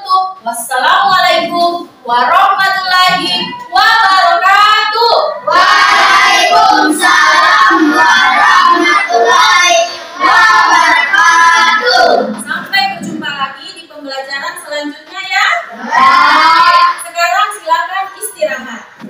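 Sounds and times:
children singing in unison: 3.0 - 4.2, 5.3 - 12.5, 15.7 - 17.0.

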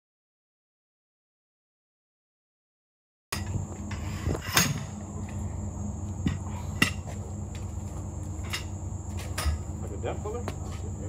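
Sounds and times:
high insect trill: 3.4 - 11.0
low hum: 3.4 - 11.0.

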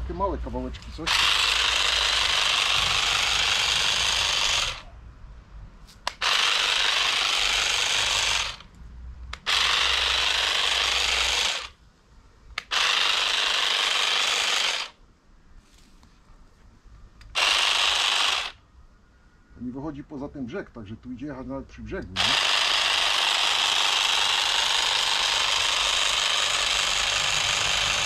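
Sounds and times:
electric grass shears running: 1.1 - 4.8, 6.1 - 8.6, 9.4 - 11.7, 12.6 - 15.0, 17.4 - 18.6, 22.2 - 28.0.

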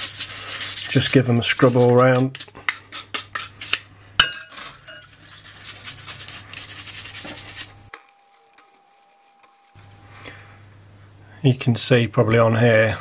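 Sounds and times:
brush scrubbing keycaps: 0.0 - 3.8, 5.2 - 10.5.

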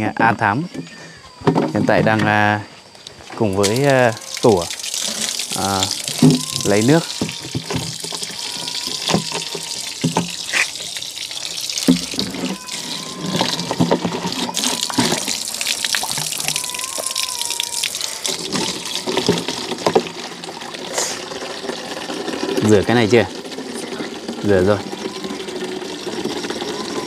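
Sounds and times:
water running and splashing: 3.1 - 27.0
containers knocking: 3.6 - 10.6, 11.8 - 17.4, 18.0 - 27.0.

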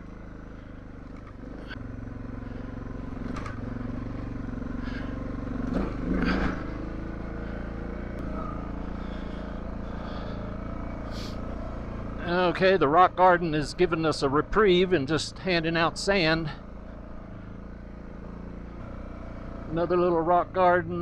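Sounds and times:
motorcycle engine under load: 0.0 - 21.0
knocks and clatters: 3.2 - 3.7.

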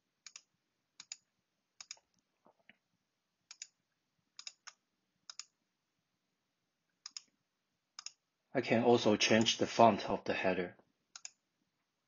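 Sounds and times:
computer mouse clicks: 0.2 - 2.2, 3.5 - 3.8, 4.4 - 5.6, 7.0 - 7.4, 8.0 - 8.2, 11.1 - 11.4.

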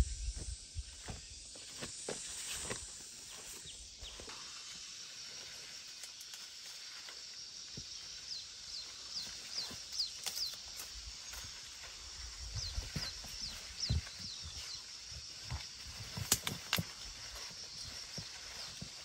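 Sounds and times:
high insect-like hiss: 0.0 - 19.0
footsteps: 0.3 - 4.5
leaves rustling: 0.4 - 19.0.

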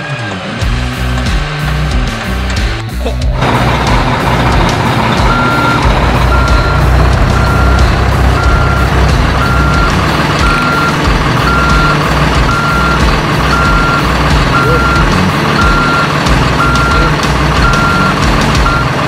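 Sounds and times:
continuous low rumble: 0.6 - 19.0
toy reversing beeper: 5.2 - 19.0.

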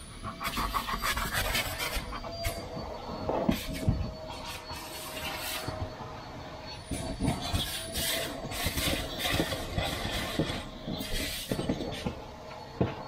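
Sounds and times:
scraping and rubbing on glass: 0.3 - 2.7, 3.3 - 5.8, 6.9 - 12.2
short hissing bursts: 3.5 - 5.8, 7.5 - 11.6.

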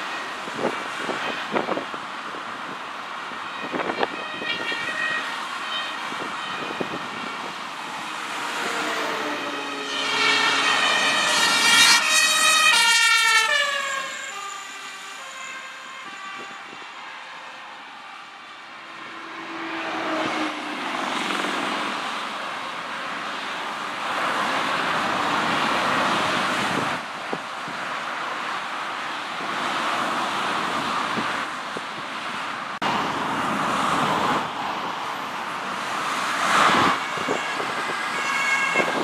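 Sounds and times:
fire engine siren: 0.0 - 1.9, 2.6 - 23.6, 36.2 - 39.0
motorway traffic rushing: 0.0 - 39.0.

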